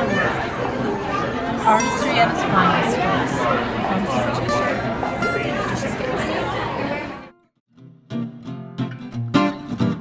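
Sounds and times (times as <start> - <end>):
acoustic guitar music: 1.4 - 10.0.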